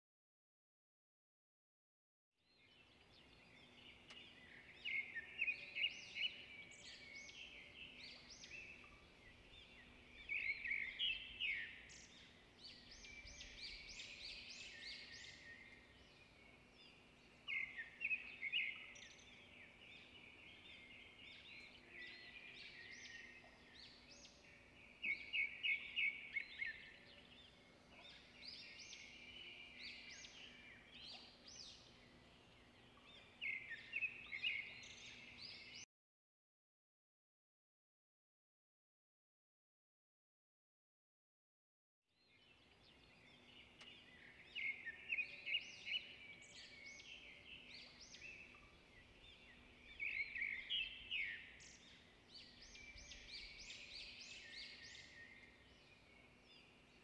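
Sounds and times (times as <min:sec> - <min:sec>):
birds chirping and singing: 0:02.5 - 0:35.8, 0:42.2 - 0:57.0.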